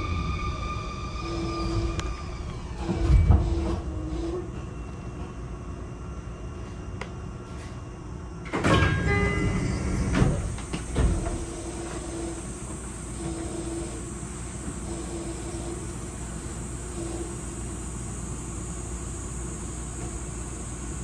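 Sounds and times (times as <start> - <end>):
sliding doors opening rush: 0.0 - 4.8, 8.5 - 14.1
train inverter whine: 0.0 - 21.0.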